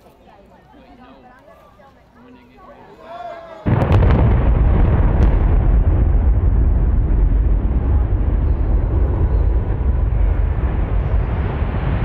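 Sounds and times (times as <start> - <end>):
low rumble of collapsing towers: 3.7 - 12.0.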